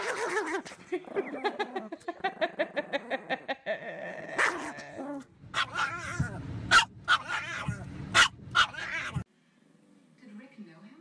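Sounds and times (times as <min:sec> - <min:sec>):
small dog growl-barking: 0:02.7 - 0:09.2.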